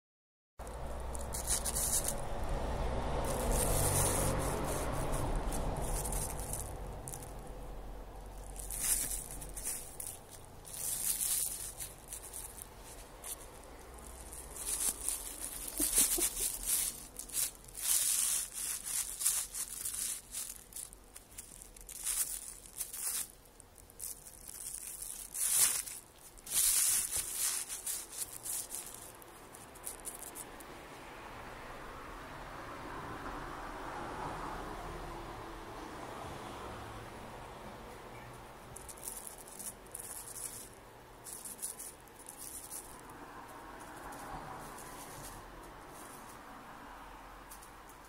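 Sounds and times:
plastic bag crinkling: 0.6s - 30.6s, 38.7s - 45.4s.

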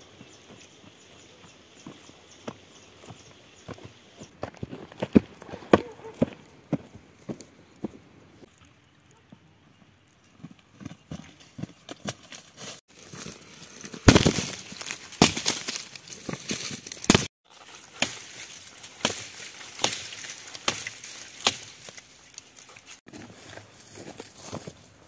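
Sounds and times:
footsteps through dry leaves: 12.1s - 25.0s
dry twigs snapping: 12.6s - 23.0s.

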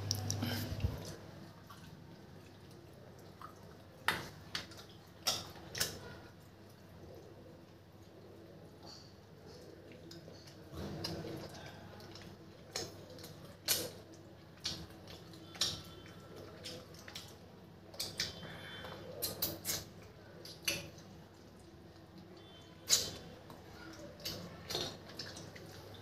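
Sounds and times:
wet lip smacks while eating: 12.1s - 15.8s, 17.9s - 18.4s, 19.2s - 21.0s, 22.9s - 23.3s.

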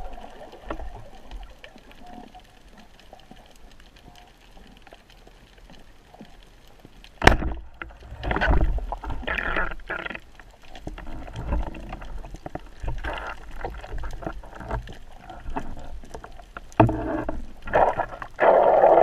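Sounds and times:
faint underwater crackling: 0.0s - 19.0s
speargun firing underwater: 7.2s - 7.6s
scraping and knocking on rocks: 16.6s - 18.3s.

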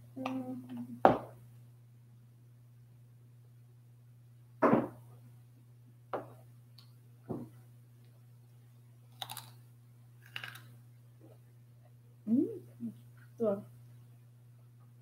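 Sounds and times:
crunching bites into vegetable: 9.1s - 9.6s, 10.2s - 10.7s.

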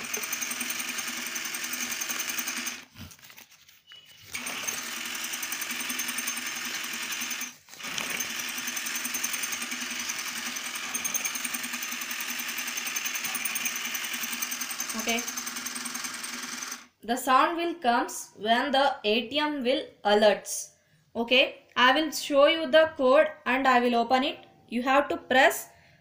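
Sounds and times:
small electric motor whirring: 0.0s - 3.4s, 4.1s - 16.9s.

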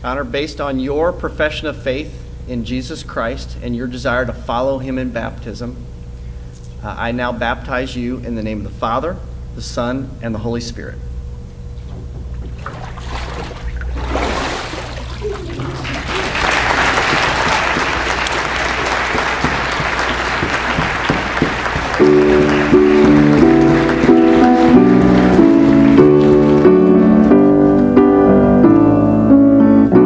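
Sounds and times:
slow piano chords: 11.5s - 30.0s
congregation applauding: 14.7s - 27.6s.

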